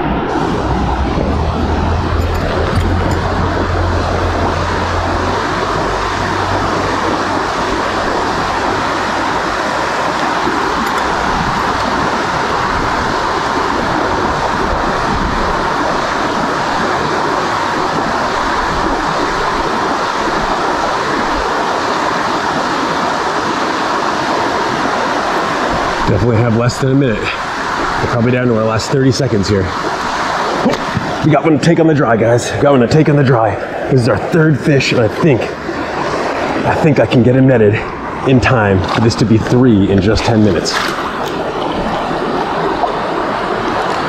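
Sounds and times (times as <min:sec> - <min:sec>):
low hum: 0:00.0 - 0:15.7
water rushing over rocks: 0:00.0 - 0:44.0.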